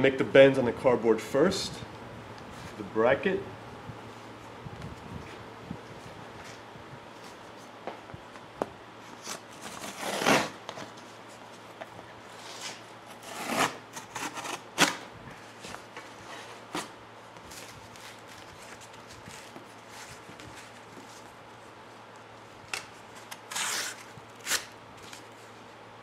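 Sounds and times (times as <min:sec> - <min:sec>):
knife scraping cardboard: 0:09.2 - 0:10.6, 0:12.4 - 0:15.0, 0:23.5 - 0:24.7
cardboard rustling: 0:15.4 - 0:21.4.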